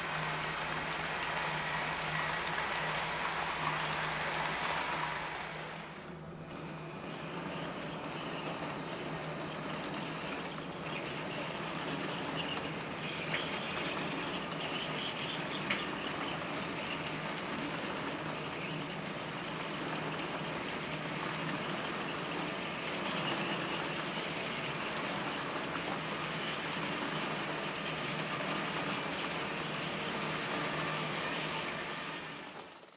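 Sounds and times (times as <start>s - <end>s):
model train wheels rumbling: 0.0s - 32.9s.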